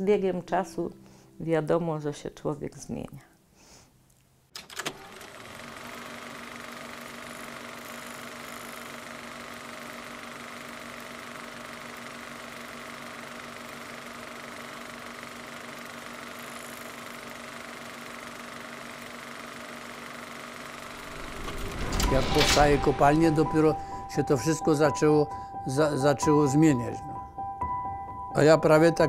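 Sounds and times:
machine hum and whir: 20.6s - 24.4s.

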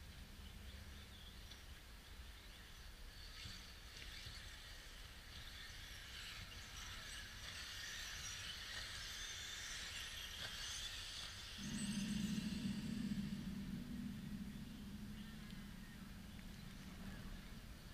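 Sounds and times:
model cars high whine: 10.9s - 17.9s
loud low hum: 11.6s - 17.9s.

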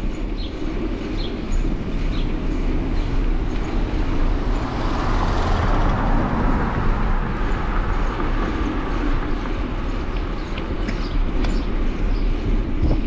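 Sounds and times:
vehicle road noise: 0.0s - 13.0s.

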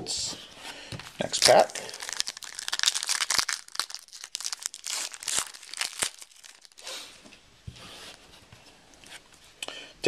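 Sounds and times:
foil wrapper tearing and crinkling: 1.0s - 6.9s.

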